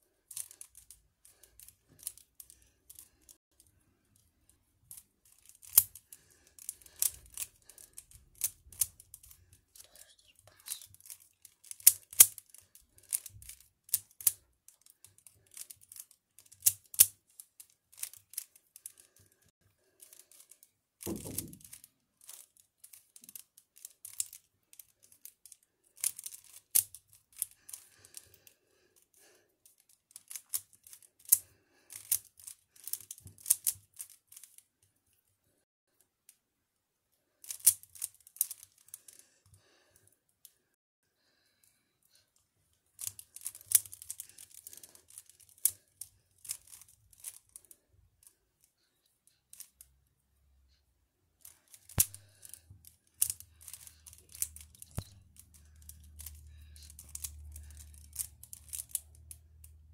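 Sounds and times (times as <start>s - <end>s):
puzzle cube clicking: 4.9s - 9.4s, 26.0s - 27.8s, 37.5s - 38.6s, 51.5s - 59.3s.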